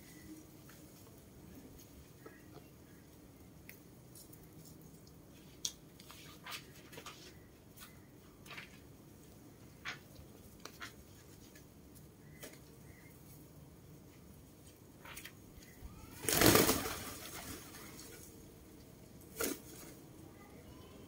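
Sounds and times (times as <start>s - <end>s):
pigeons pecking in cages: 0.1s - 21.0s.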